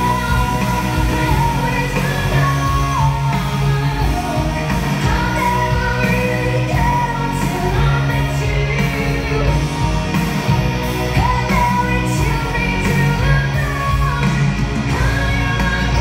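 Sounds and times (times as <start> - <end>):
rock song over sound system: 0.0 - 16.0.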